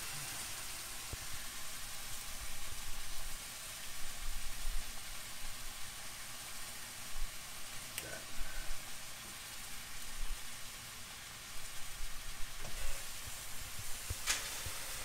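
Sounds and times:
meat sizzling in a skillet: 0.0s - 15.0s.

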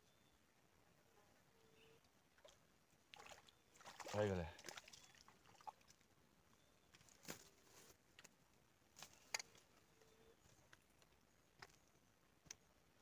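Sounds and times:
faint clicks and taps handling fish: 10.5s - 12.6s.

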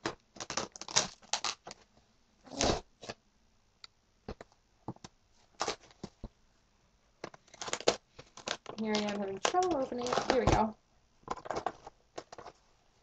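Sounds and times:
cardboard envelope rustling: 7.4s - 10.7s.

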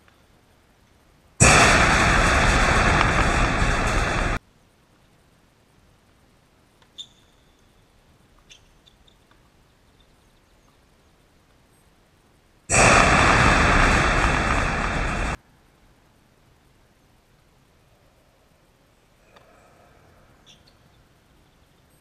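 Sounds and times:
loud rushing hiss: 1.4s - 4.4s, 12.7s - 15.4s.

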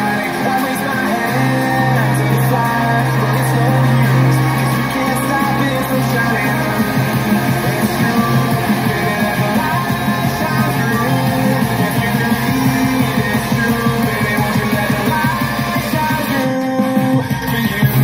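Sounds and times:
song with singing and beat: 0.0s - 18.0s.

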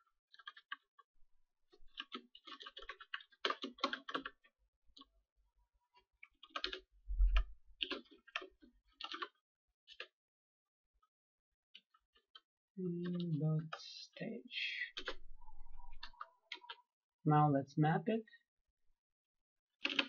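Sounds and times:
typing on computer keyboard: 0.3s - 1.0s, 1.9s - 5.1s, 6.2s - 10.2s, 14.9s - 16.9s, 19.8s - 20.0s.

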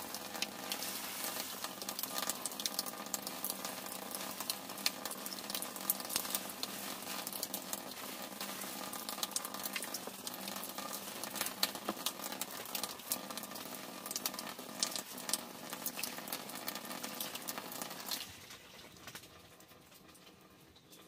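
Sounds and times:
faint hiss: 0.0s - 2.5s
hands washing rice in water: 0.0s - 13.0s.

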